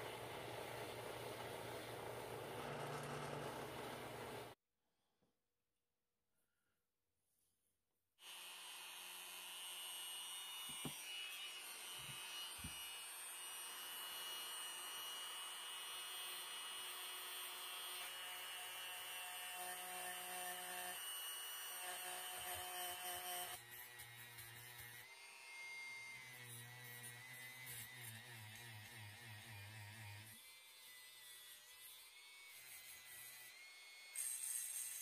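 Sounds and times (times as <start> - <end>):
rotary tool running: 2.5 - 4.6.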